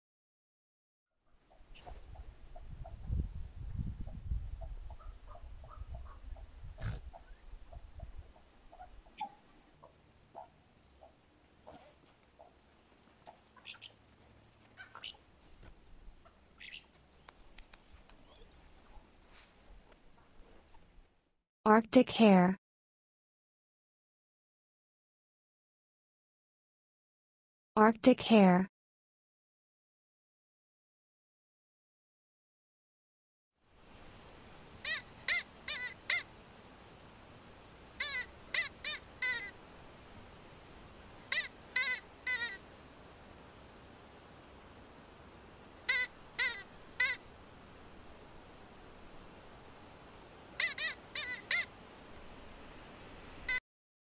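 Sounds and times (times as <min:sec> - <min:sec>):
faint outdoor ambience: 0:01.3 - 0:22.5, 0:33.6 - 0:53.6
faint steady hiss: 0:01.5 - 0:21.3, 0:33.6 - 0:53.6
light clicks: 0:17.2 - 0:18.3.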